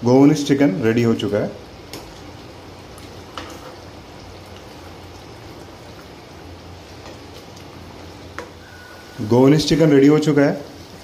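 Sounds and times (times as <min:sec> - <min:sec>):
curry simmering in a pan: 0:01.6 - 0:09.4.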